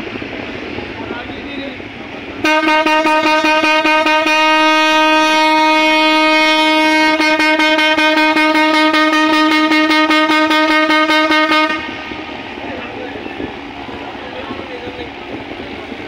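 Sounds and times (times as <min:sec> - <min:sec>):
ship's horn: 0:02.4 - 0:12.5.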